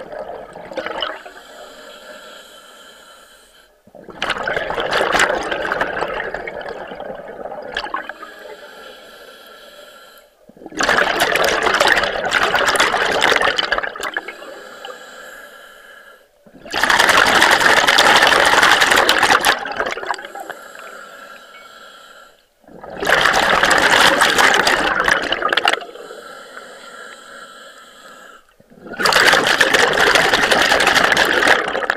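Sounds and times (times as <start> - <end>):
rush of exhaled bubbles: 0.0 - 1.5, 3.9 - 8.6, 10.5 - 14.6, 16.5 - 20.6, 22.6 - 26.3, 28.6 - 31.9
diver breathing through regulator: 1.1 - 3.8, 8.1 - 10.4, 14.2 - 16.4, 20.2 - 22.6, 25.7 - 28.6.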